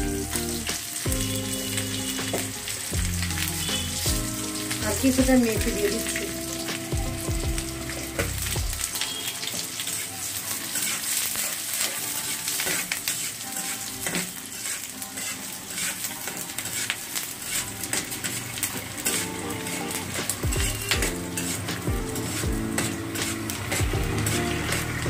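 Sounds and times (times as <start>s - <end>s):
onions sizzling in hot oil: 0.0s - 25.0s
spatula stirring: 9.5s - 25.0s.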